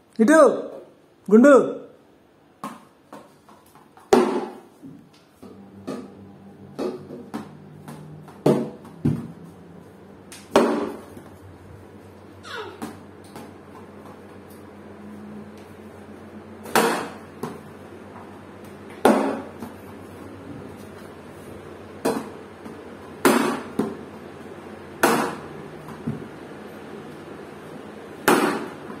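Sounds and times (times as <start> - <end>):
plastic bat hitting ball: 4.0 - 4.7, 5.8 - 9.3, 10.3 - 11.3, 16.6 - 17.6, 18.9 - 19.8, 22.0 - 22.4, 23.2 - 24.0, 25.0 - 26.2, 28.2 - 29.0.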